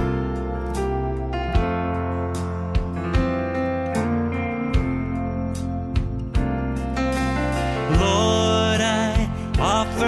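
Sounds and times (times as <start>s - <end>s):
gentle acoustic guitar tune: 0.0s - 10.0s.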